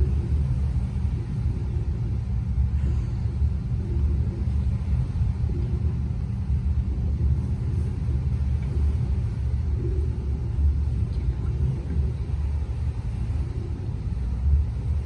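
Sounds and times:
boat engine and hull rumble: 0:00.0 - 0:15.0.

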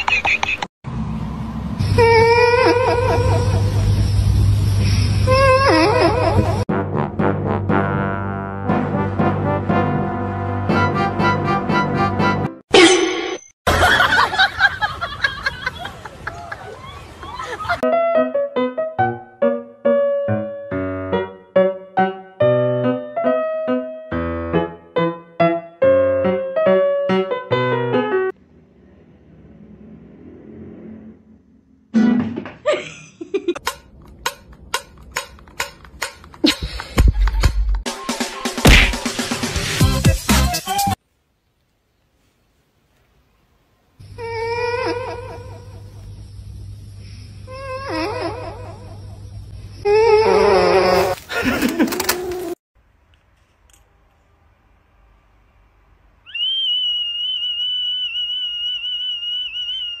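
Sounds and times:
shrill whistle note: 0:56.3 - 1:00.0.

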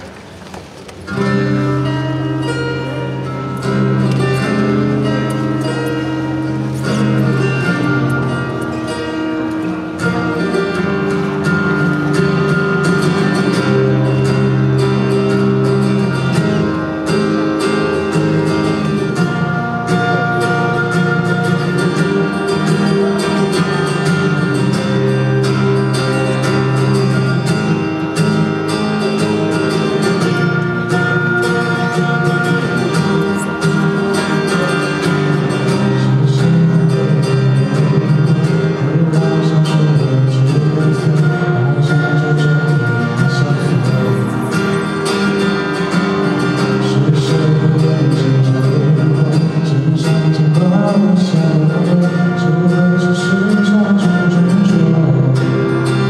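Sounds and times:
acoustic guitar through pa: 0:00.0 - 0:56.0
man singing into microphone: 0:30.4 - 0:56.0.

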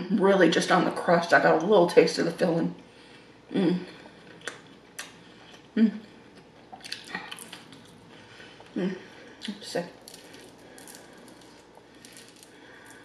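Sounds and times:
crunch of biting fried crust: 0:09.9 - 0:13.0.

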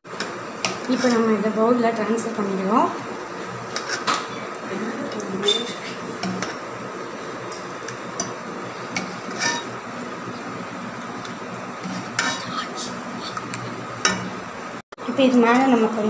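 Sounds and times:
ladle scraping and clinking on pot: 0:00.6 - 0:01.3, 0:03.7 - 0:04.4, 0:07.5 - 0:09.8, 0:11.8 - 0:12.6.

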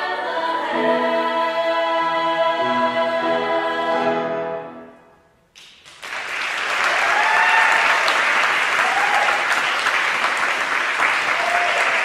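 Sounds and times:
women's choir singing chord: 0:00.0 - 0:05.0
audience applause: 0:05.6 - 0:12.0
crowd whooping: 0:06.8 - 0:09.7, 0:11.2 - 0:12.0.

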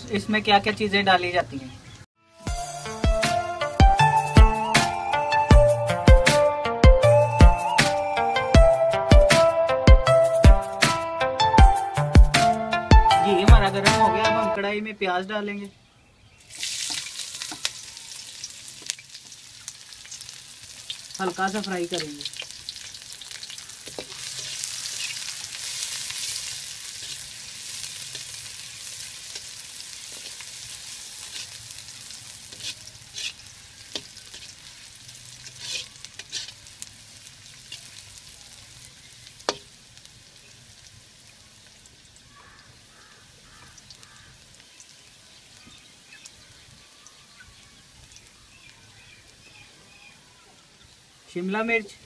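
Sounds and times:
onions sizzling in hot oil: 0:16.3 - 0:52.0
metal spatula scraping pan: 0:23.9 - 0:24.7, 0:32.5 - 0:34.6, 0:35.4 - 0:36.6.

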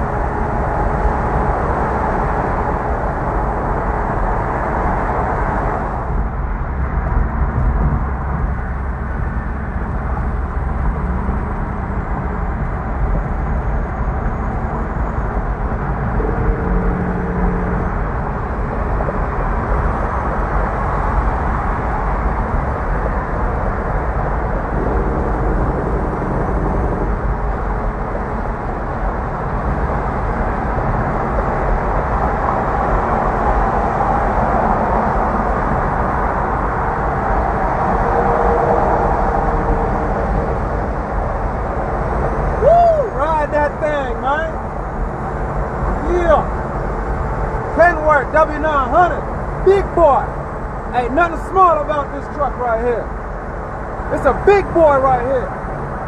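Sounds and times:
road and wind noise: 0:00.0 - 0:56.0
truck diesel engine rumble: 0:39.0 - 0:56.0.

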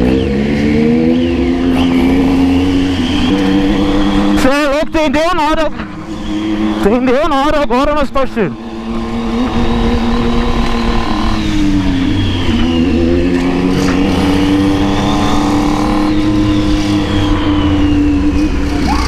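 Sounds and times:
motorcycle engine running: 0:00.0 - 0:04.7, 0:08.5 - 0:19.0
road and wind rumble: 0:00.0 - 0:19.0.

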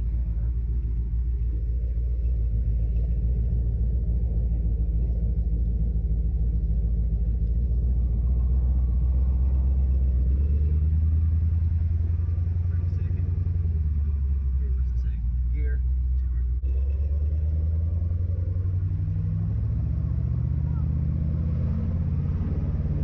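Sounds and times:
car engine low rumble from cabin: 0:00.0 - 0:23.0.

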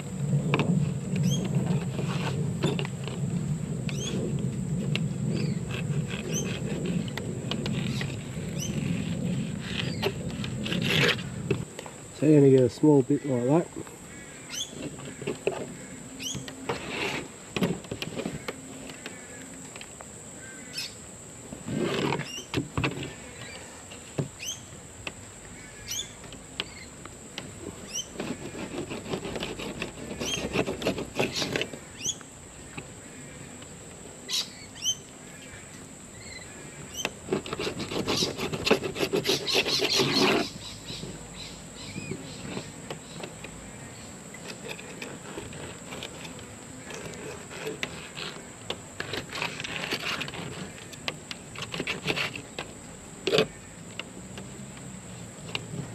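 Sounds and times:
rapid scratchy scraping: 0:00.0 - 0:11.7, 0:14.7 - 0:18.5, 0:21.6 - 0:23.4, 0:27.5 - 0:31.9, 0:37.0 - 0:41.2, 0:44.3 - 0:53.5
birds chirping: 0:01.2 - 0:01.6, 0:03.9 - 0:04.3, 0:05.3 - 0:08.9, 0:11.1 - 0:16.7, 0:22.2 - 0:24.8, 0:25.4 - 0:27.0, 0:31.2 - 0:33.7, 0:34.3 - 0:37.2, 0:39.2 - 0:45.1.

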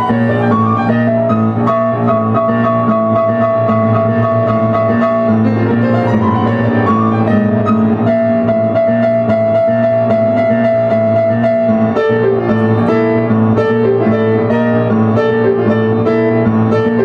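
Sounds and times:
piano playing: 0:00.0 - 0:17.0.

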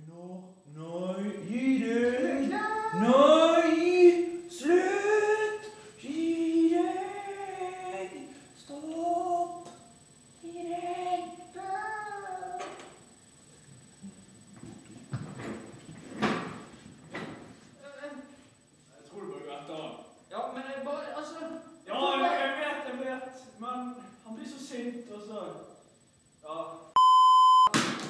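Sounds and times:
voices singing sliding notes: 0:01.1 - 0:09.7.

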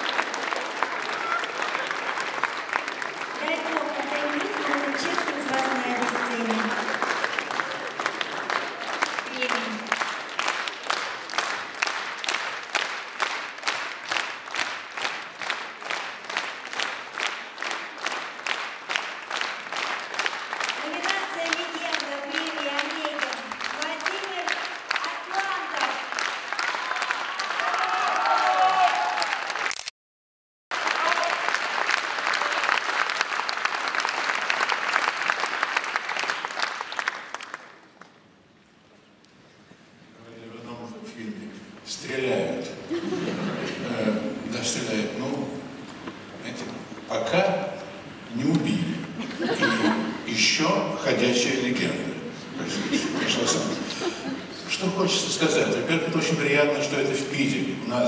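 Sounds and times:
audience clapping in rhythm: 0:00.0 - 0:29.9, 0:30.7 - 0:38.5.

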